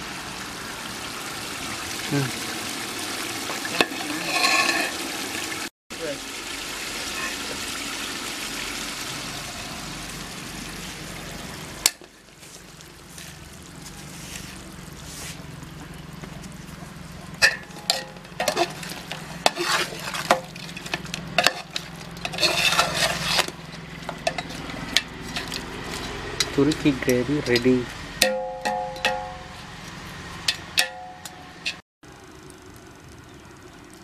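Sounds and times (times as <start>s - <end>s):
metal ladle scraping pot: 3.5s - 5.2s, 17.4s - 29.4s.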